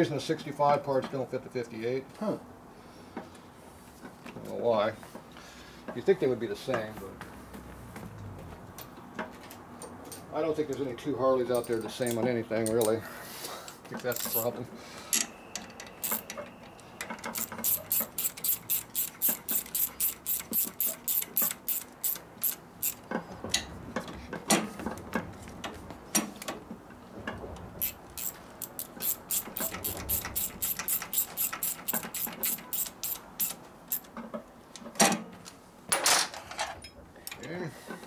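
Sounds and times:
ratchet wrench clicking: 14.0 - 14.5, 16.0 - 16.4, 17.1 - 23.1, 27.8 - 34.1.

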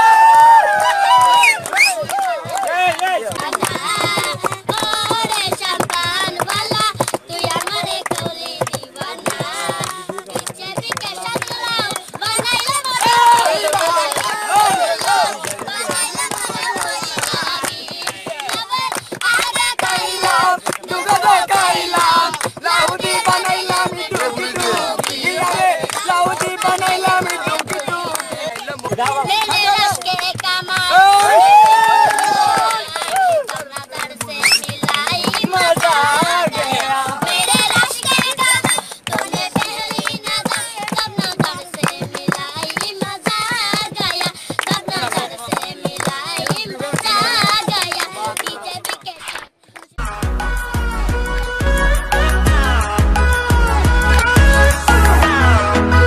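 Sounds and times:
hand claps: 0.0 - 55.6
girls singing unaccompanied: 3.3 - 31.1, 32.3 - 49.4.

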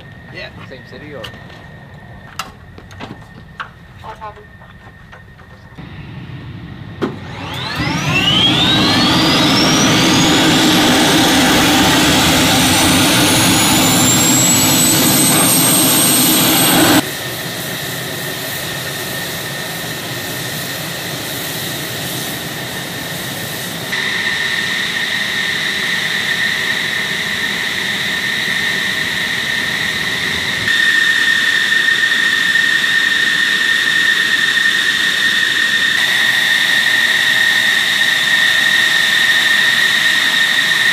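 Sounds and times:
jet engine whine spooling up: 0.0 - 40.9.

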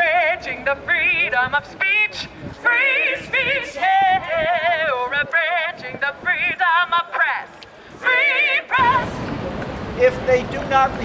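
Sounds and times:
woman singing through megaphone: 0.0 - 9.3.

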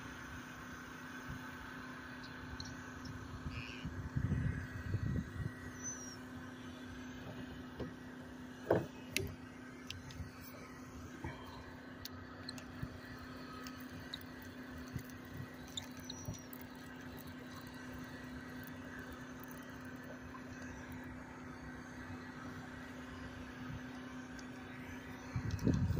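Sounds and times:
steady low hum: 0.0 - 25.9
gear knocking and clicking: 12.4 - 20.9.

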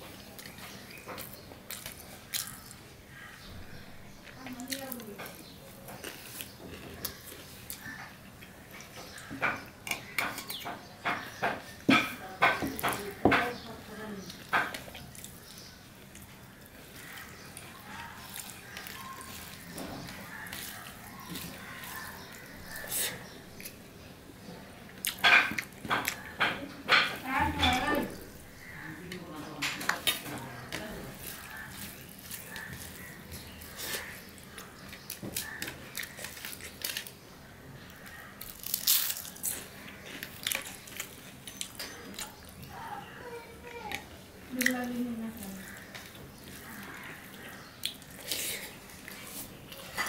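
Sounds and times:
crunching fried fritter: 0.1 - 3.4, 4.2 - 11.8, 14.3 - 23.8, 29.7 - 43.2
wet squishing of rice: 14.2 - 23.8, 28.4 - 43.2, 44.0 - 50.0.

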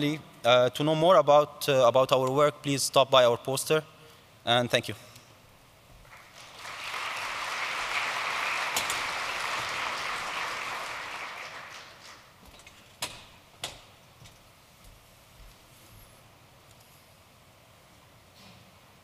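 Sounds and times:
large audience applauding: 6.0 - 12.4.

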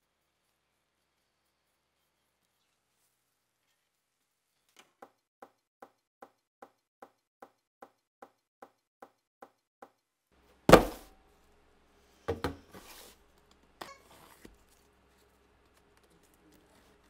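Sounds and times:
loud knock: 10.7 - 11.1.

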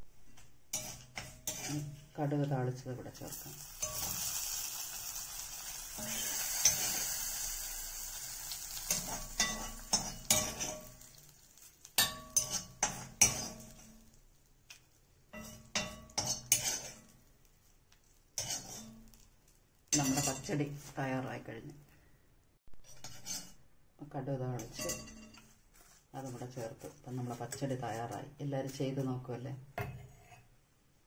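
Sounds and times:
seeds sizzling in hot oil: 0.0 - 22.0, 22.8 - 23.7
metal spoon scraping pan: 0.2 - 2.4, 3.1 - 4.4, 5.8 - 7.6, 8.8 - 14.2, 15.3 - 17.3, 18.4 - 19.3, 19.9 - 21.0, 22.8 - 23.6, 24.5 - 29.2, 29.8 - 30.6.

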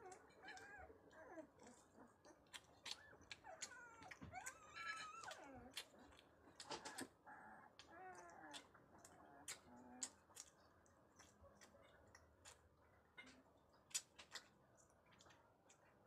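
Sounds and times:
puppy whimpering: 0.0 - 10.2.

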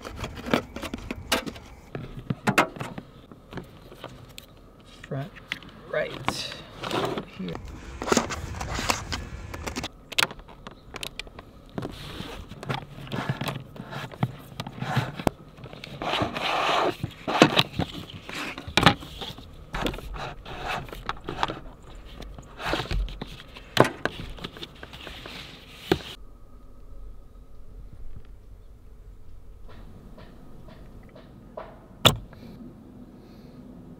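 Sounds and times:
cables scraping and rustling: 0.0 - 26.2
sharp clicks and knocks: 29.6 - 32.4.

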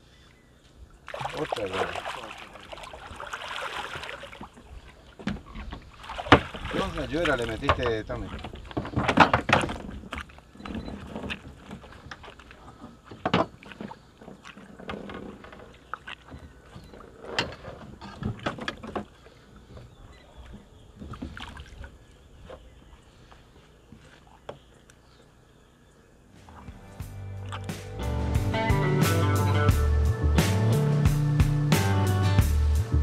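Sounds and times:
knocks and clatter in a boat: 4.0 - 22.7.

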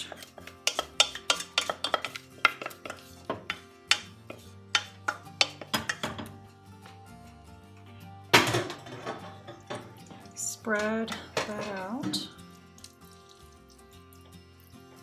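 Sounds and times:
wooden spoon scraping metal pans: 0.0 - 6.4, 8.4 - 12.4
faint background music: 0.0 - 15.0.

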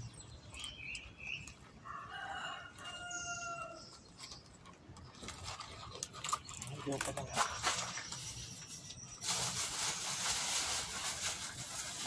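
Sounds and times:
rooster crowing: 1.8 - 3.9.

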